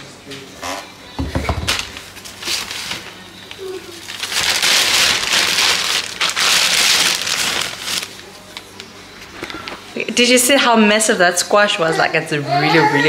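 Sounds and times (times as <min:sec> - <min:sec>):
plastic bag rustling: 0:01.6 - 0:09.9.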